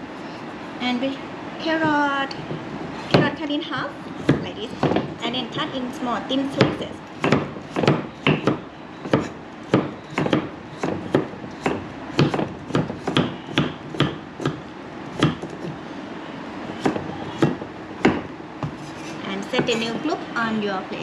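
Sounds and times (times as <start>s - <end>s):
knife chopping on wooden block: 6.6s - 14.6s, 15.2s - 15.7s, 16.8s - 19.0s.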